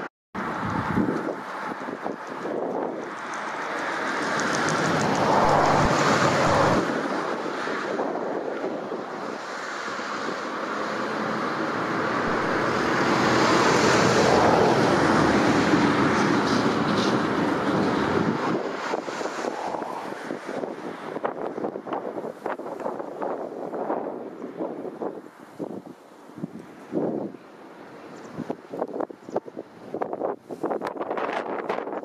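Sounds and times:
even rushing noise: 3.0s - 21.4s.

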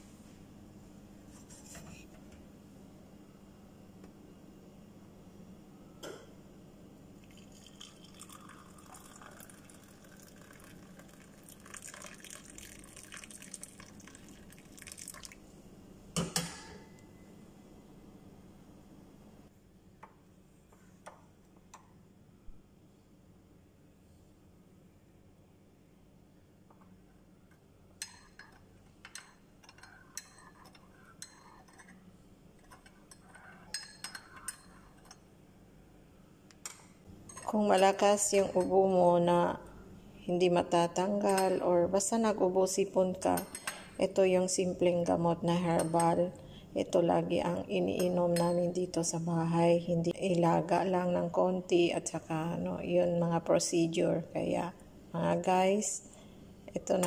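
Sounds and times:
tea pouring into a mug: 7.2s - 15.4s.

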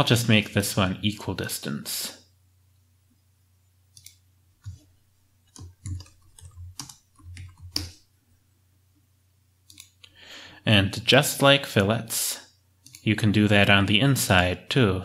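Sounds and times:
keyboard key clicks: 5.5s - 8.0s.

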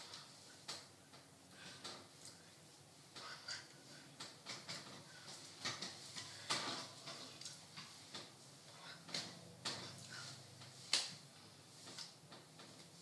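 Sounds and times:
hands tapping and brushing clothing: 4.2s - 13.0s.

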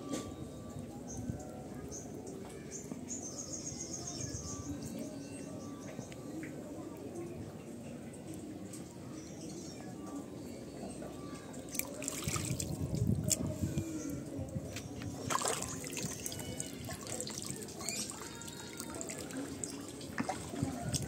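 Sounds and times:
shallow water splashing: 11.7s - 13.4s, 15.1s - 21.0s.

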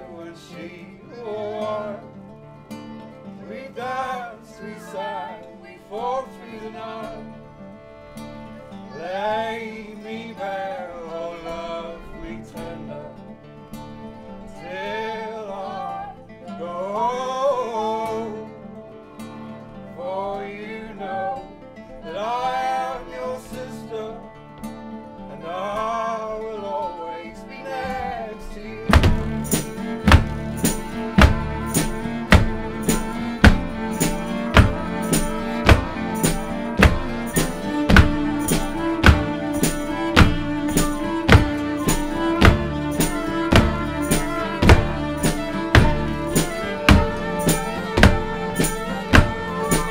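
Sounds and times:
man singing: 0.0s - 2.1s, 3.4s - 7.2s, 8.9s - 13.3s, 14.5s - 18.6s, 22.0s - 24.4s, 25.3s - 49.9s
fiddle: 0.0s - 49.9s
strummed nylon-string guitars: 0.0s - 49.9s
foot stomping on wooden floor: 28.9s - 49.9s
jingling tambourine: 28.9s - 49.9s.

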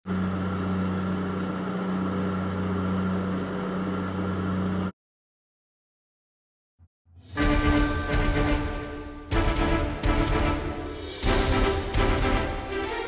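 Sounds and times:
boat engines droning: 0.0s - 4.9s.

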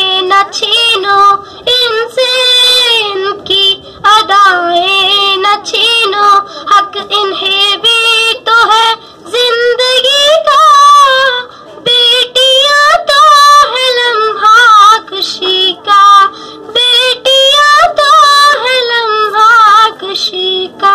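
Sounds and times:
boy singing unaccompanied: 0.0s - 20.9s.

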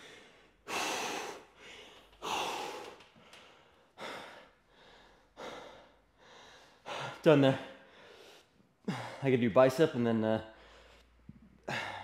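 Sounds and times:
man breathing hard: 0.0s - 9.3s, 10.5s - 12.0s.

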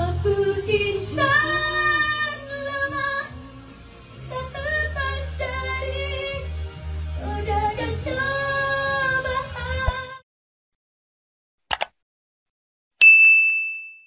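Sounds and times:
two women singing: 0.0s - 3.4s, 4.3s - 6.6s, 7.2s - 10.2s
musical accompaniment with bass: 0.0s - 10.2s.

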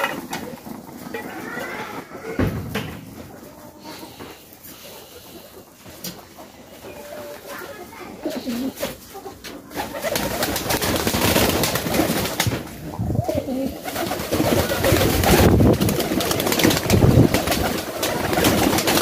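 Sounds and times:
pigeons cooing: 0.0s - 19.0s
wings fluttering: 8.4s - 19.0s.

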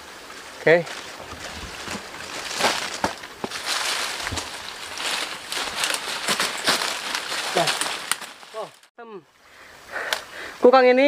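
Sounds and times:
leaves and branches rustling: 0.0s - 11.0s
twigs snapping: 0.9s - 8.9s.

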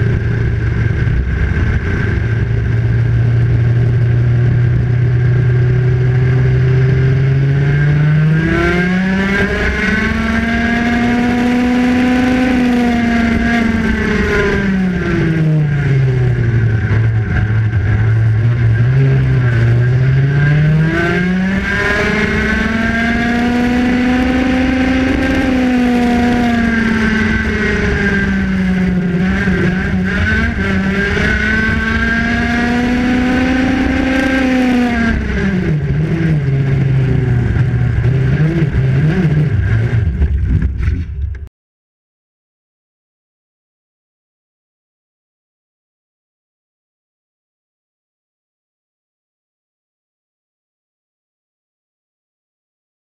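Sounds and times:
go-kart engine: 0.0s - 41.5s.

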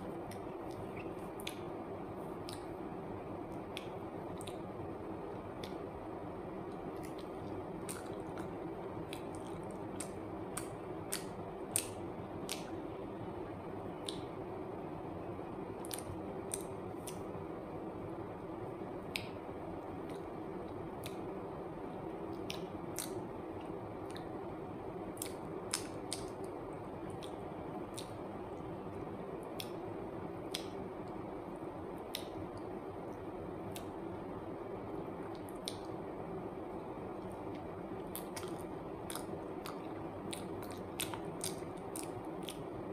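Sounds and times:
room hiss: 0.0s - 42.9s
banana squishing and clicking: 37.3s - 42.7s.

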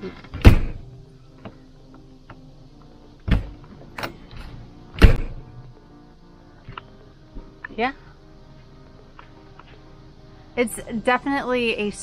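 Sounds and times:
door thudding shut: 0.3s - 0.9s, 3.2s - 4.2s, 5.0s - 5.5s.

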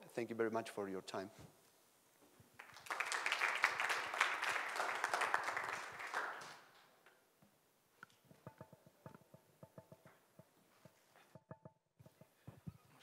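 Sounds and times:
audience applauding: 2.6s - 6.9s.

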